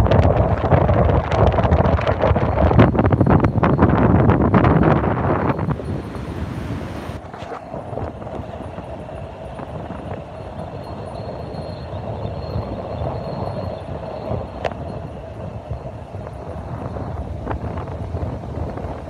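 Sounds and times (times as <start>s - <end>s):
wind buffeting microphone: 0.0s - 19.0s
surf breaking on beach: 4.0s - 11.0s.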